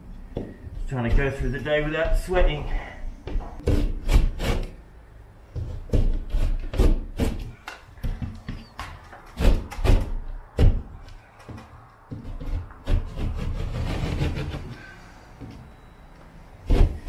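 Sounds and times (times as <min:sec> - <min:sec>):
knife scraping through drywall: 0:03.6 - 0:04.8, 0:12.2 - 0:14.8.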